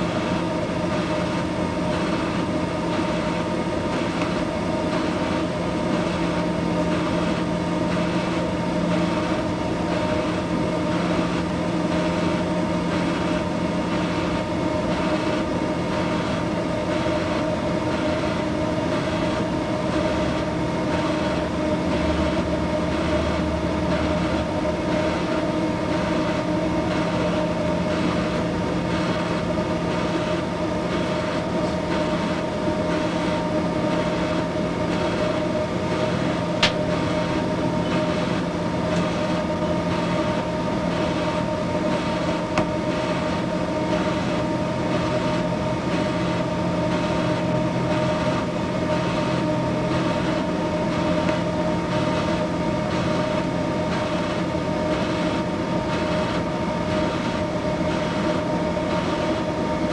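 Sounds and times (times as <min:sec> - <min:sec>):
welding arc hum and buzz: 0:00.0 - 0:59.9.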